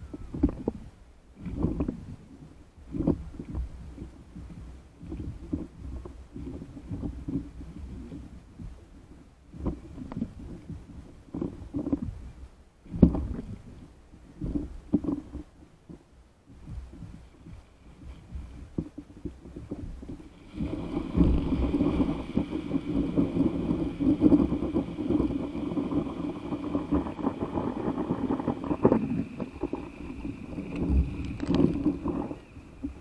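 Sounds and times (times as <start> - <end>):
water slapping against paddle board: 14.4 - 33.0
rumbling: 16.5 - 33.0.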